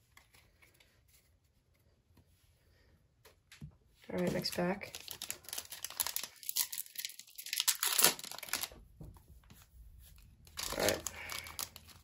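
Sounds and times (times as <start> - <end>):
foil wrapper tearing and crinkling: 4.4 - 8.8, 10.5 - 12.0.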